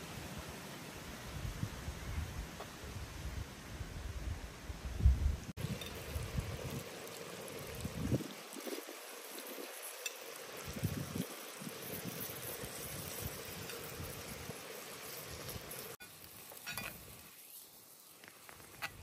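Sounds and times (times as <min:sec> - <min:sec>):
quiet hiss: 0:00.0 - 0:19.0
chicken sizzling in a pan: 0:05.5 - 0:19.0.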